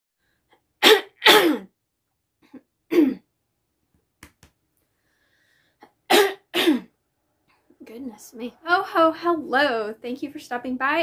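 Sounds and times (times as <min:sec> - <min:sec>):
woman coughing: 0:00.8 - 0:01.7, 0:02.9 - 0:03.3, 0:06.1 - 0:06.9.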